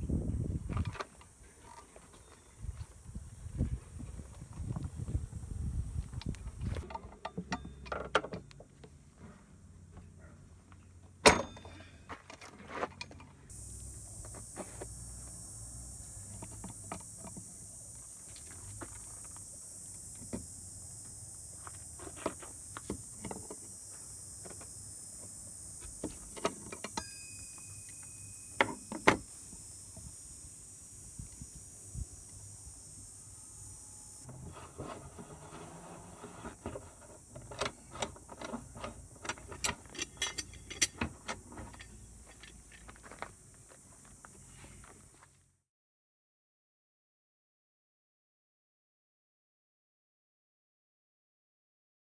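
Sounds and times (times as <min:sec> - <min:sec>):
steady high hiss: 0:13.5 - 0:34.3
pliers scraping on wheel rim: 0:34.4 - 0:42.5.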